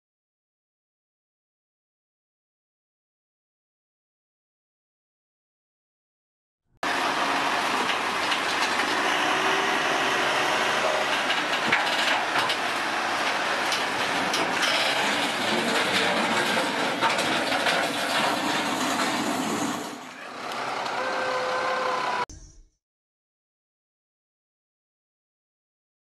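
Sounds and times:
diesel engine running under load: 6.8s - 22.4s
metal ramps clanking: 7.4s - 20.2s.

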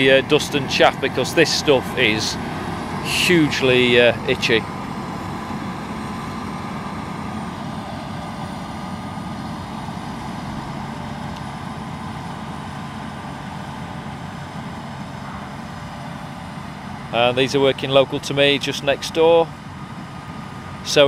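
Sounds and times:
combine harvester running: 0.0s - 21.0s.

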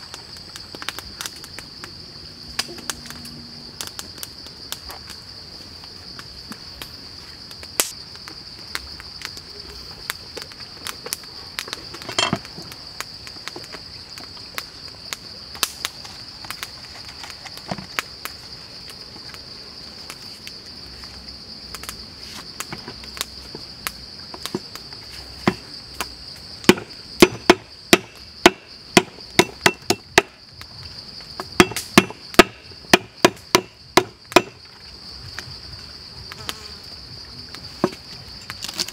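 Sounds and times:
high drone of insects: 0.0s - 38.9s
cleaver chopping on wooden board: 26.7s - 30.3s, 31.6s - 34.6s.

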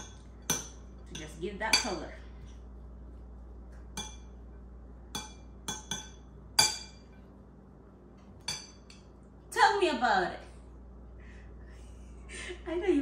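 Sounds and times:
metal spoon clinking ceramic bowl: 0.0s - 2.0s, 4.0s - 4.4s, 5.1s - 7.2s, 8.4s - 9.1s.

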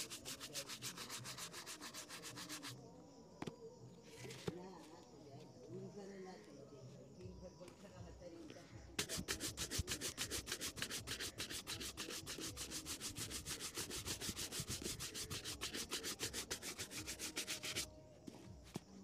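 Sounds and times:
shoe brush buffing leather: 0.0s - 2.8s, 9.0s - 17.9s.

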